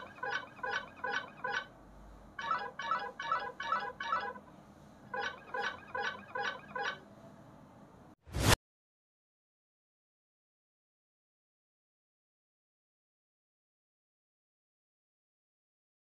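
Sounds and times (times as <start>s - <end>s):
electronic ringtone chirps: 5.1s - 7.0s.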